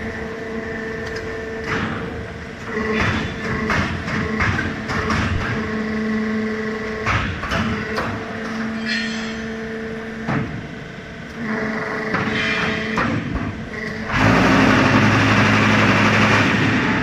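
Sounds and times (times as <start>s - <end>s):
sharp metal knocks: 7.0s - 9.5s.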